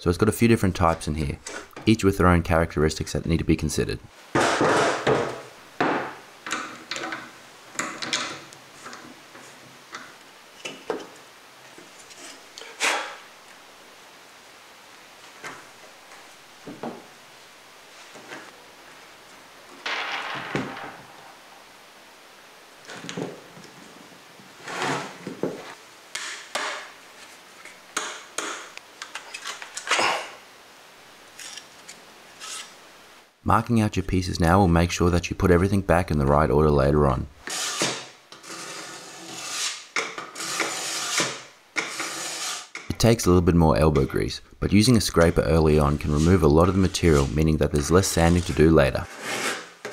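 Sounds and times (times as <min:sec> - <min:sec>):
wooden pieces knocking and scraping: 0:04.3 - 0:13.2, 0:19.7 - 0:21.4.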